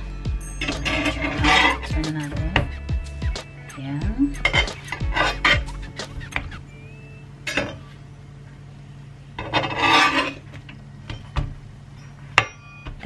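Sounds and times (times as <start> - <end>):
metal spatula scraping skillet: 0.6 - 1.9, 4.4 - 5.6, 9.4 - 10.5.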